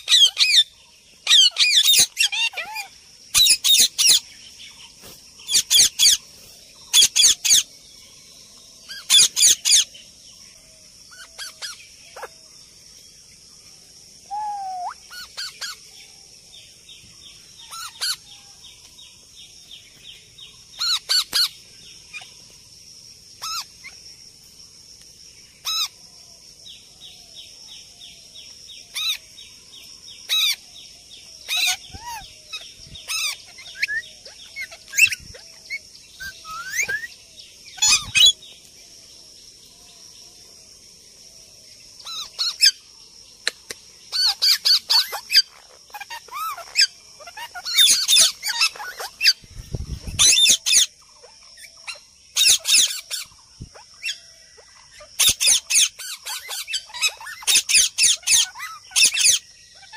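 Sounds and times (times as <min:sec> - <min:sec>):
parakeets screeching: 0:00.0 - 0:04.2, 0:05.4 - 0:06.2, 0:06.9 - 0:07.7, 0:08.9 - 0:09.9, 0:11.1 - 0:12.3, 0:14.3 - 0:15.8, 0:17.6 - 0:18.3, 0:20.8 - 0:22.3, 0:23.4 - 0:24.0, 0:25.6 - 0:25.9, 0:28.9 - 0:29.2, 0:30.3 - 0:30.6, 0:31.4 - 0:37.1, 0:37.8 - 0:38.4, 0:42.0 - 0:42.8, 0:44.1 - 0:49.4, 0:50.2 - 0:59.9.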